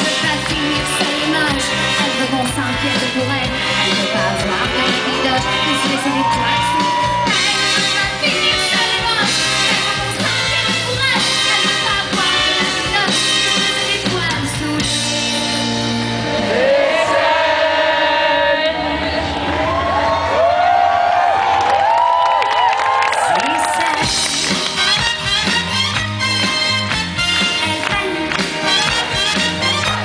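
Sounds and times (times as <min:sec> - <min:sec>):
woman singing: 0:00.0 - 0:15.6, 0:27.5 - 0:30.0
drums: 0:00.0 - 0:16.7, 0:22.5 - 0:30.0
pop-rock band playing: 0:00.0 - 0:18.7, 0:23.4 - 0:30.0.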